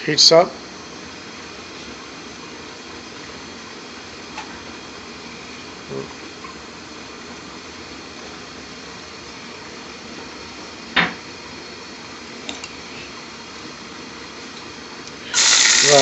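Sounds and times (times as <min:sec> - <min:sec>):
hiss of pan of oil heating: 0:15.1 - 0:16.0.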